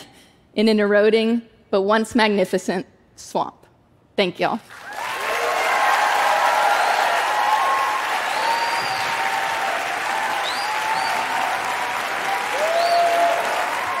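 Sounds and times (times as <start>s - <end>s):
audience applauding: 4.7s - 14.0s
cheers: 4.8s - 14.0s.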